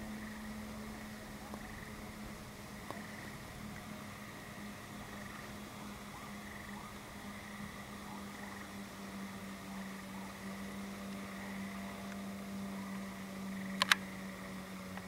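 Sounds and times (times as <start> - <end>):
distant frogs chorus: 0.0 - 15.0
low hum and hiss: 0.0 - 15.0
sharp clicks: 13.7 - 14.1.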